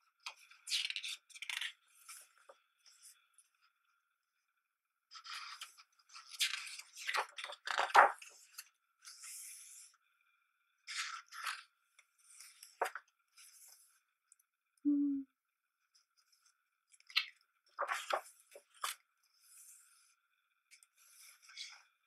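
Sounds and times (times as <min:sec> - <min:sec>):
book pages turning: 0:00.2 - 0:03.2, 0:05.2 - 0:09.7, 0:10.9 - 0:13.9, 0:17.0 - 0:20.0.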